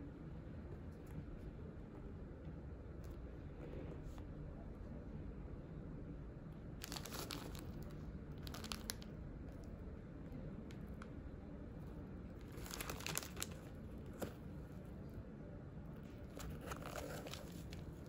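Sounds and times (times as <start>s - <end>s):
plastic packaging crinkling: 6.8s - 9.2s, 12.4s - 14.8s, 16.2s - 18.0s.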